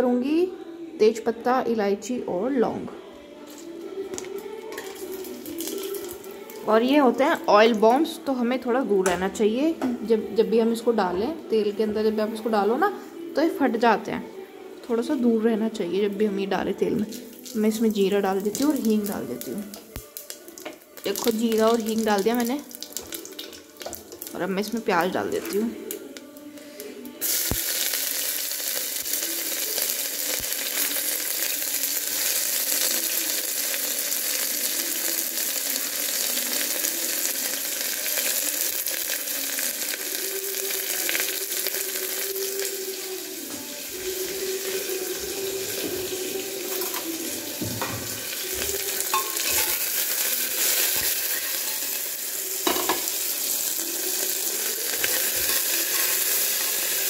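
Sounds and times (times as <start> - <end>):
onions sizzling in hot oil: 4.7 - 7.5, 17.0 - 26.2, 26.8 - 57.0.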